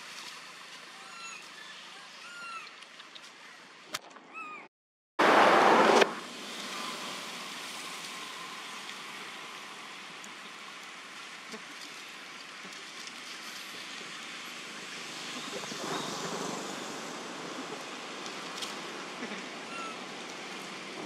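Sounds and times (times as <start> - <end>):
outdoor background hiss: 5.2 - 21.0.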